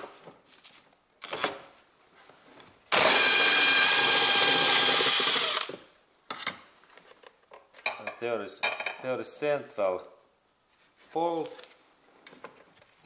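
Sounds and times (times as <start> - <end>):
cordless power tool spinning: 2.9 - 5.8.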